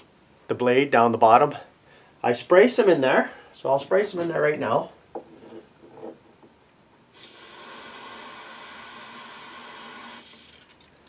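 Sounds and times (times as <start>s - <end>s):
aerosol can hissing: 7.1s - 10.6s.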